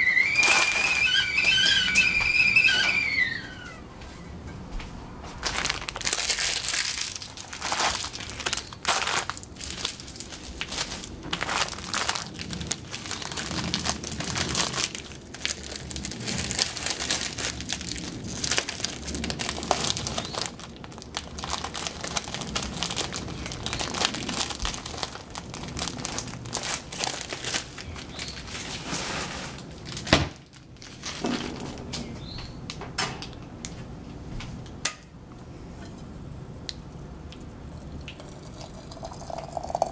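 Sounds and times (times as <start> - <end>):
plastic packaging crinkling: 0.0 - 2.8, 5.3 - 31.2.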